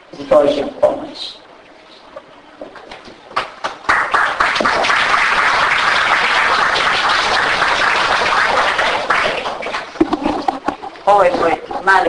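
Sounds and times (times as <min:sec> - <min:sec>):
audience applauding: 0:03.3 - 0:10.4.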